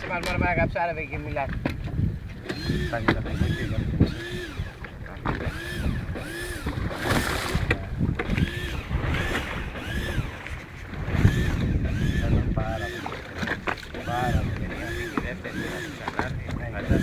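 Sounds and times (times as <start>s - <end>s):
water noise: 0.0s - 17.0s
wind: 0.0s - 17.0s
fishing reel gears whining: 2.4s - 4.8s, 5.4s - 10.5s, 11.1s - 16.1s.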